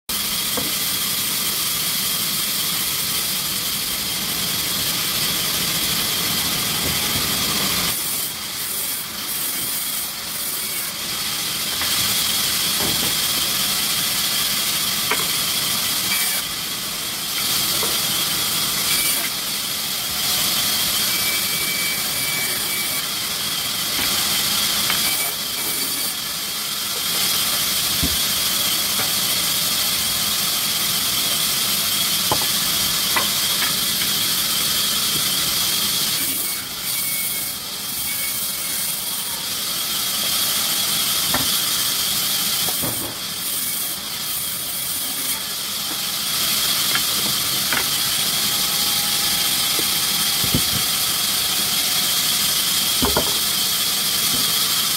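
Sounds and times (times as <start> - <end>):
sawmill machinery hissing: 0.1 - 54.9.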